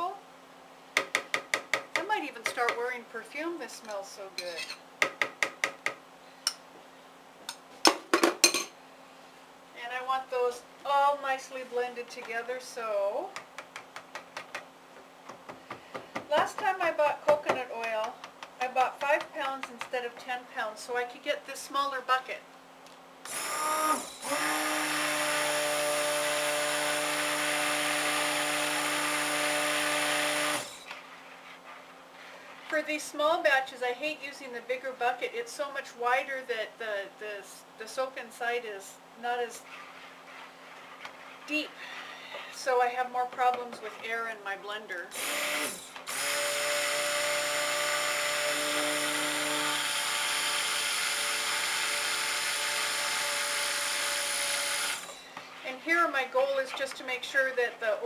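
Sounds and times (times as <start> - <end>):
stick blender motor whine: 23.3 - 31.0, 45.2 - 55.3.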